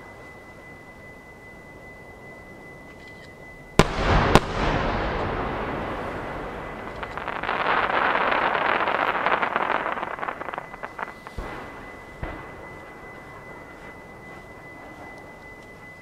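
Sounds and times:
long rolling echo: 0:03.6 - 0:16.0
firework shells bursting with booms: 0:03.8 - 0:13.1
dense crackling of sparks: 0:03.8 - 0:16.0.

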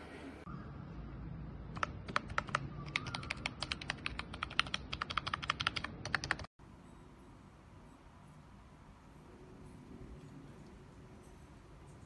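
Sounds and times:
keypad keys clicking: 0:01.8 - 0:06.5.

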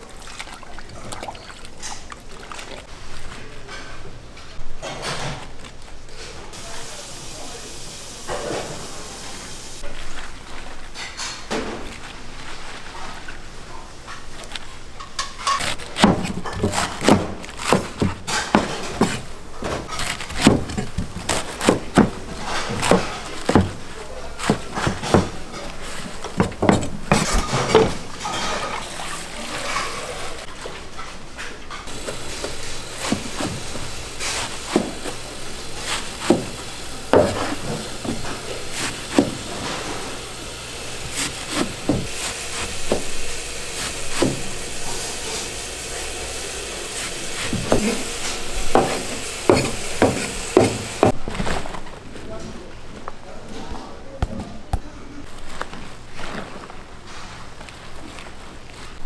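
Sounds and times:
cabbage leaves crunching and rustling: 0:31.9 - 0:45.3.

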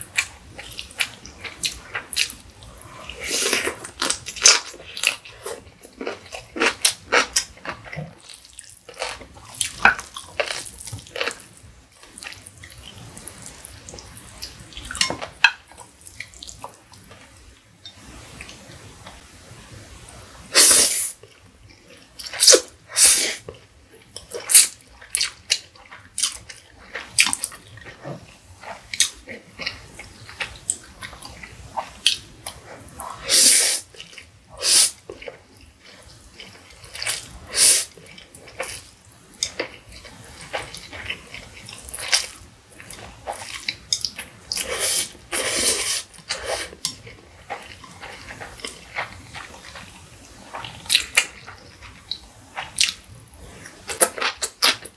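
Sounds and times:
chewing mouth sounds: 0:23.5 - 0:54.9
slurping noodles: 0:31.8 - 0:33.9, 0:44.5 - 0:49.9.

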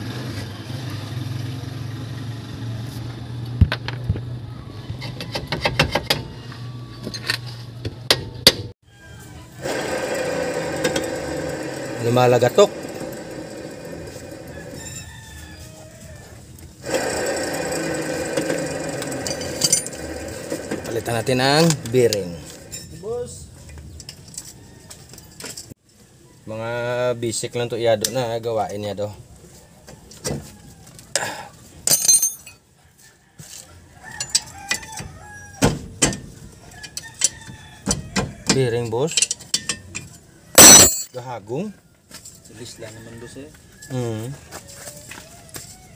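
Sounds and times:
hand tools clinking on metal: 0:18.3 - 0:23.2, 0:31.8 - 0:32.6, 0:39.1 - 0:41.2.

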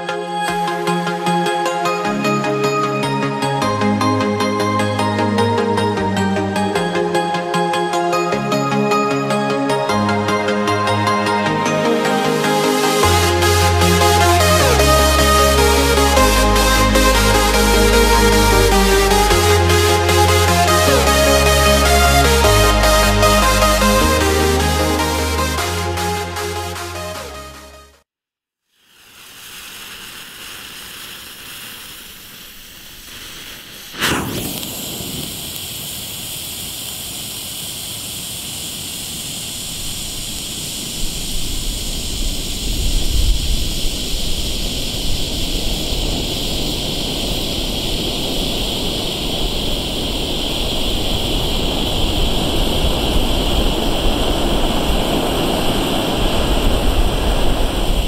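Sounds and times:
flare burning with rushing hiss: 0:28.7 - 0:58.0
flare igniting burst: 0:28.9 - 0:58.0.

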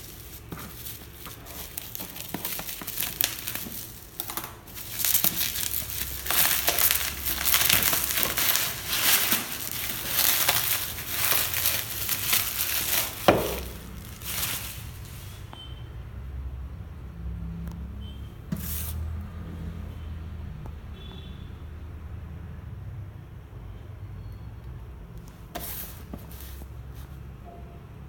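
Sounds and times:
scissors cutting bubble wrap: 0:00.0 - 0:15.4
bubble wrap crinkling: 0:00.0 - 0:15.5, 0:25.5 - 0:26.7.

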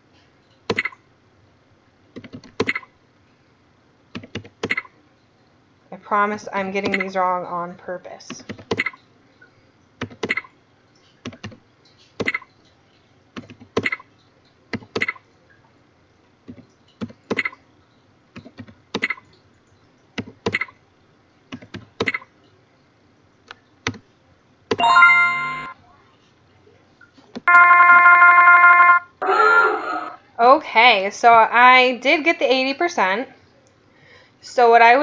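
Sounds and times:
ringing electronic chime: 0:24.8 - 0:25.8, 0:27.5 - 0:29.1.

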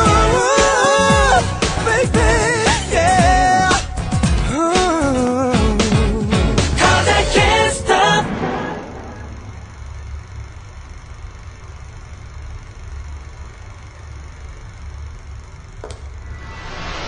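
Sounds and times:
low rumbling drone: 0:06.0 - 0:12.1, 0:16.0 - 0:17.0.

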